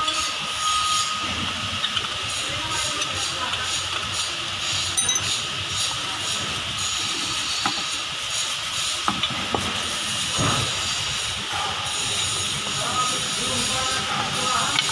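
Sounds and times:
metal clinks: 5.0 - 5.4.

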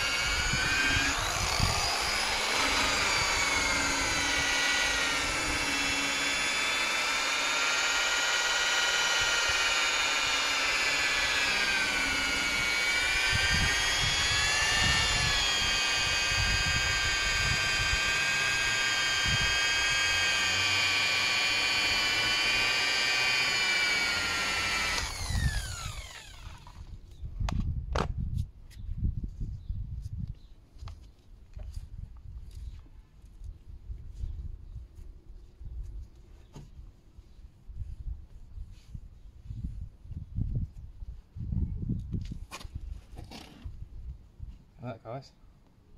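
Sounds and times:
electric polisher whining: 0.0 - 26.8.

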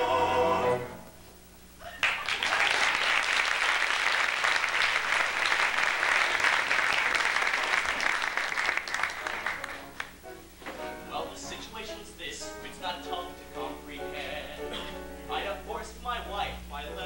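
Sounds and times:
audience applauding: 1.9 - 10.2.

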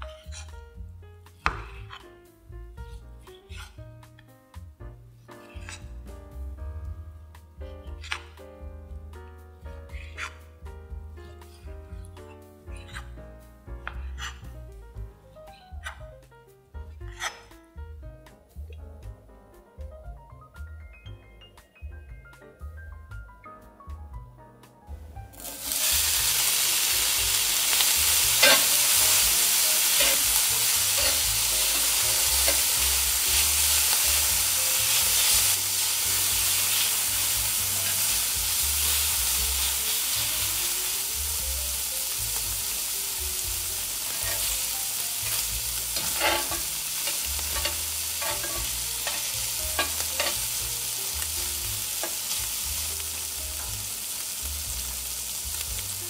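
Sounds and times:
food sizzling in a pan: 25.3 - 56.0.

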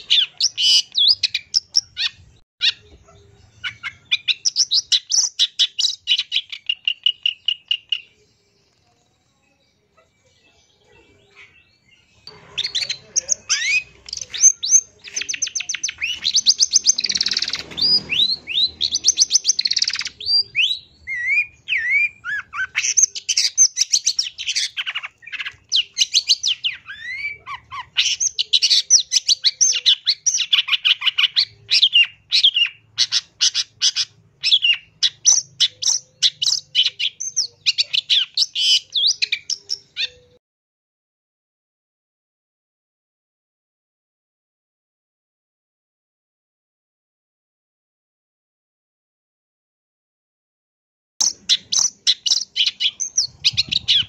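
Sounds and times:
bird chattering song: 0.0 - 40.4, 51.2 - 54.0.

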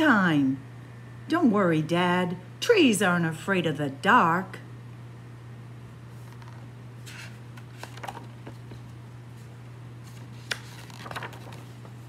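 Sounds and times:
steady low hum: 0.0 - 12.0
paper pages rustling: 6.1 - 12.0.

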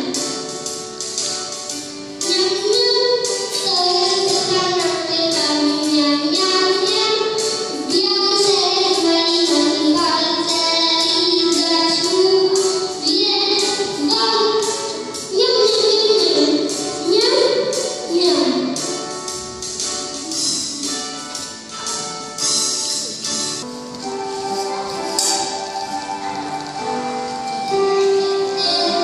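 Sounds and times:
child singing into microphone: 0.0 - 0.6, 2.2 - 19.2, 24.4 - 29.0
musical accompaniment: 0.0 - 29.0.

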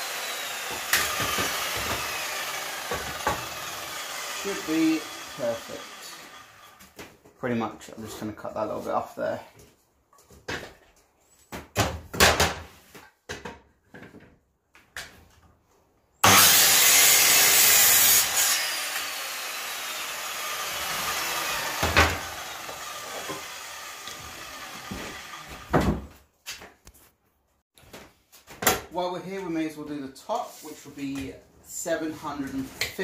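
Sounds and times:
saw blade spinning down: 0.0 - 6.8, 16.2 - 25.7
mitre saw cutting wood: 0.0 - 7.0, 16.2 - 25.8.

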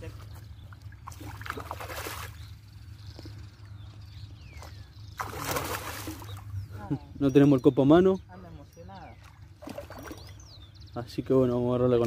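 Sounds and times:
low steady hum: 0.0 - 12.0
fish splashing at water surface: 1.0 - 2.4, 5.2 - 6.4.

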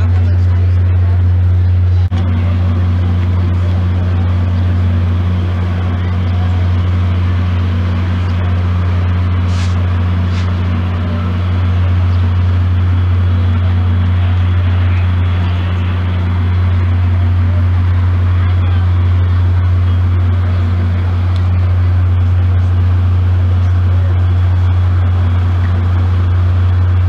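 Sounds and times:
diesel locomotive engine idling: 0.0 - 27.0
short hisses: 9.4 - 10.6.

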